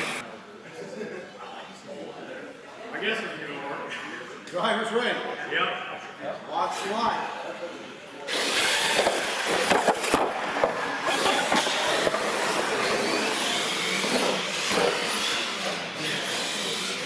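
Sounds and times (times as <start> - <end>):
toy truck motors whirring: 8.3 - 17.0
tyres on concrete floor: 8.3 - 17.0.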